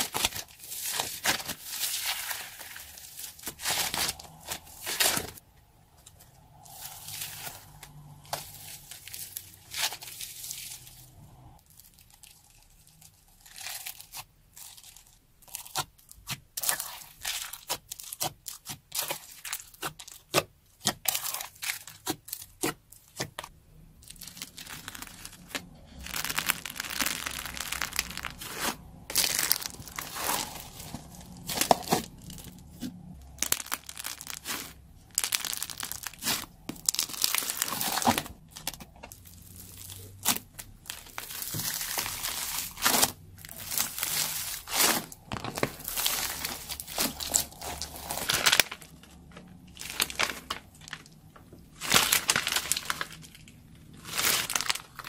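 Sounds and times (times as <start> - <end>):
foam beads crackling in slime: 0.0 - 5.4, 24.0 - 55.0
sticky slime tearing: 24.0 - 49.0.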